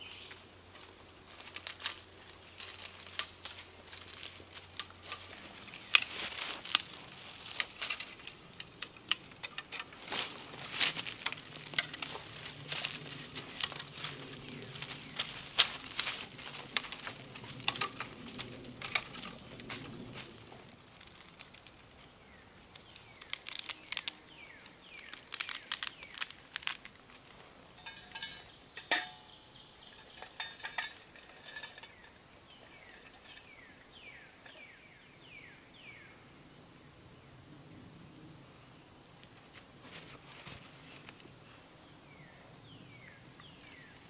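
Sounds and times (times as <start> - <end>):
dry twigs snapping: 0.7 - 29.2
metallic clink of camp stove: 27.8 - 29.4.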